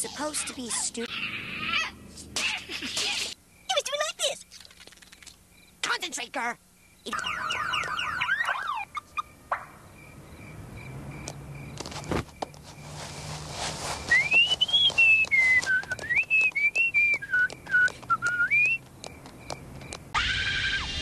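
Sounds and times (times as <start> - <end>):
thump: 12.0 - 12.3
person whistling a tune: 14.1 - 18.8.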